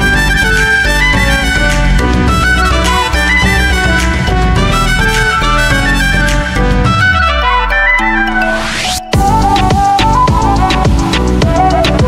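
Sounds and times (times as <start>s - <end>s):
latin tune with brass: 0.0s - 12.0s.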